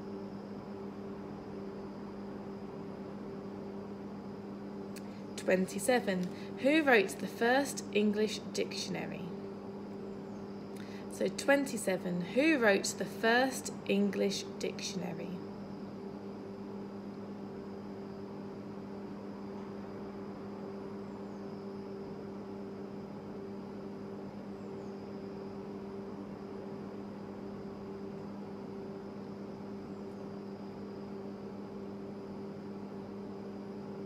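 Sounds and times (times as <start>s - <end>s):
faint high whine: 0.0s - 34.0s
low electrical hum: 0.0s - 34.0s.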